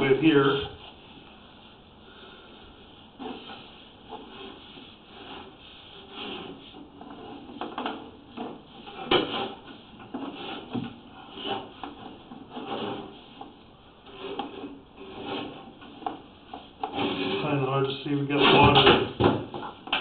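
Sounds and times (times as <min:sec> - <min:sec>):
cable scraping in pipe: 0:03.1 - 0:18.7.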